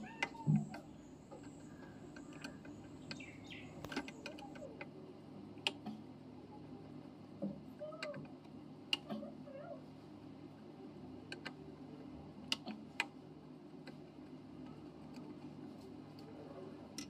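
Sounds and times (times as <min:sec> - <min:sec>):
low steady background noise: 0:00.0 - 0:17.0
faint chirps: 0:00.1 - 0:04.7.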